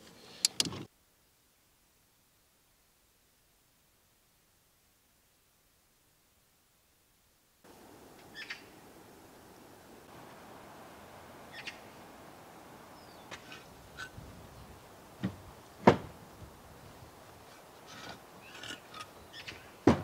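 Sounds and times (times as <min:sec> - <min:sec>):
birds chirping: 0:07.7 - 0:20.0.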